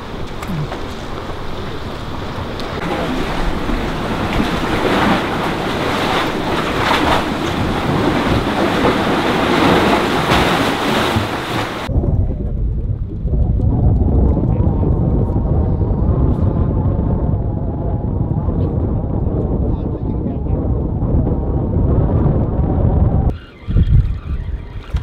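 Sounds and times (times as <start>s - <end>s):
waves washing against rocks: 0.0s - 11.9s
wind on microphone: 0.0s - 25.0s.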